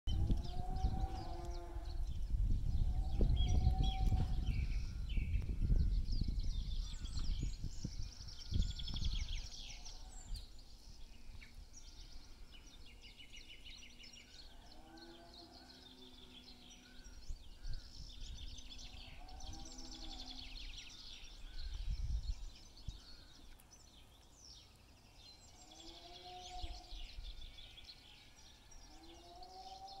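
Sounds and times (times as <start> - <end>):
cows lowing: 0.1 - 5.0
songbirds singing: 0.1 - 30.0.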